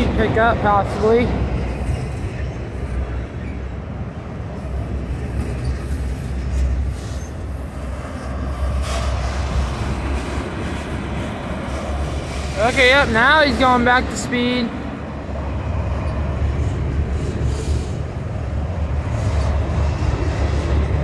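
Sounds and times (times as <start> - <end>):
freight train wheels rumbling on rail: 0.0 - 21.0.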